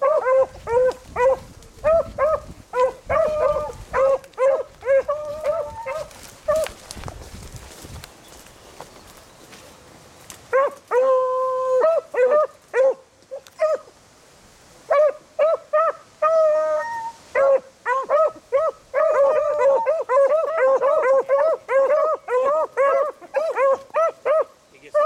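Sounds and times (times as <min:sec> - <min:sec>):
dogs barking: 0:00.0 - 0:06.8, 0:10.5 - 0:13.0, 0:17.4 - 0:25.0
hounds bawling: 0:00.0 - 0:06.8, 0:15.0 - 0:25.0.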